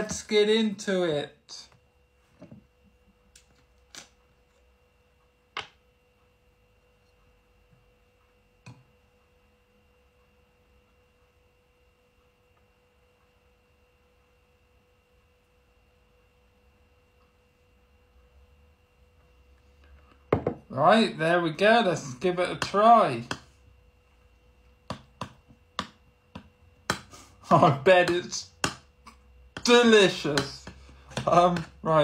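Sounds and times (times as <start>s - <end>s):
faint steady tone: 0.9s - 32.0s
cap set down on wooden table: 20.3s - 20.6s.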